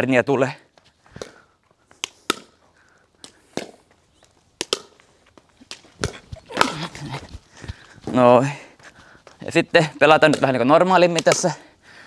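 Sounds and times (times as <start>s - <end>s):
paddles striking plastic ball: 2.0s - 2.6s, 3.2s - 7.1s, 10.2s - 11.5s
ball bouncing on tiled court: 4.6s - 8.1s, 10.3s - 11.4s.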